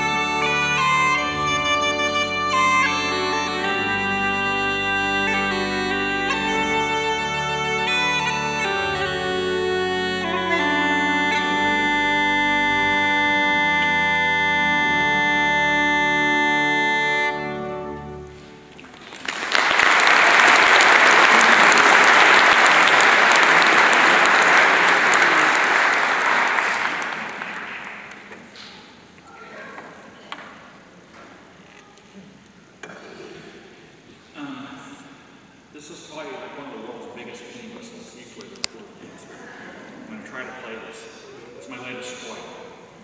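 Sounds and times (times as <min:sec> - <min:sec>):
uilleann pipes playing: 0:00.0 - 0:28.6
audience applauding: 0:18.8 - 0:28.6.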